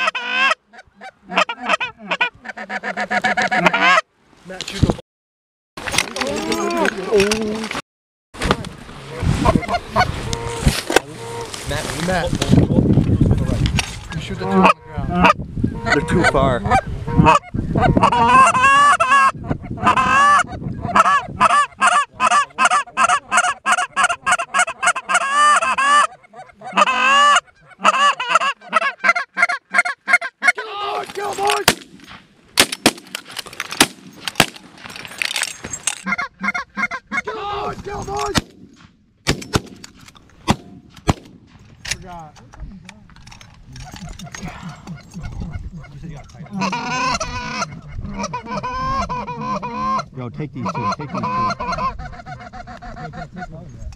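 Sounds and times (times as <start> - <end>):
geese honking: 0.0 - 4.0, 9.1 - 11.7, 14.4 - 31.6, 36.0 - 37.7, 43.8 - 53.6.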